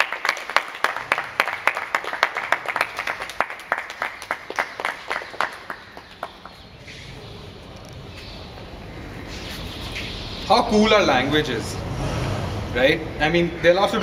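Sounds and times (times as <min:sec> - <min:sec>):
hands clapping: 0:00.0 - 0:06.6.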